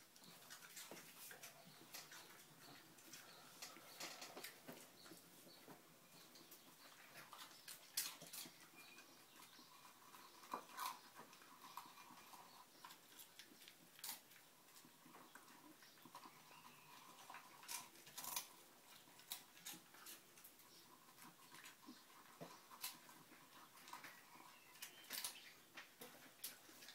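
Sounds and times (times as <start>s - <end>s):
dog crunching kibble: 7.0s - 26.9s.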